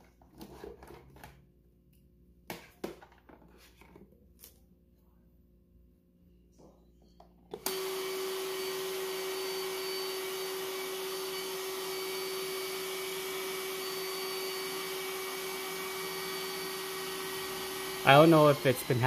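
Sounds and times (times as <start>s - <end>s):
suction motor humming: 7.6s - 19.0s.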